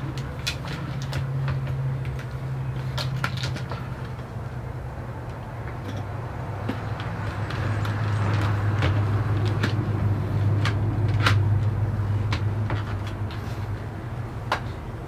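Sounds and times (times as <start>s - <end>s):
hard plastic parts clicking: 6.6s - 13.6s.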